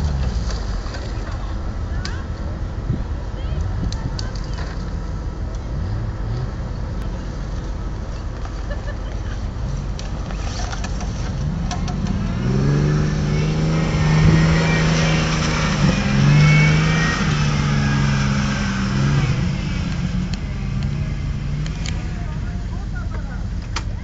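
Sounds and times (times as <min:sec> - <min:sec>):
jeep engine driving past: 0:11.3 - 0:22.6.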